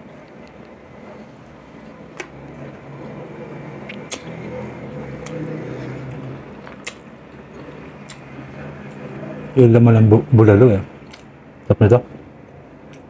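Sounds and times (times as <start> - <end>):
chewing and mouth sounds: 3.8 - 8.3, 11.0 - 11.3.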